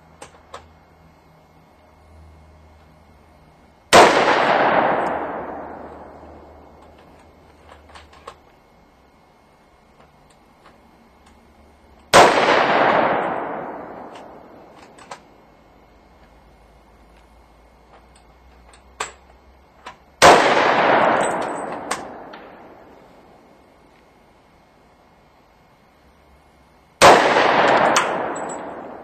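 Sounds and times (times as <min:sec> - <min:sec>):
pistol shots with echo: 0:03.9 - 0:06.8, 0:12.1 - 0:14.8, 0:20.2 - 0:22.9, 0:27.0 - 0:29.0.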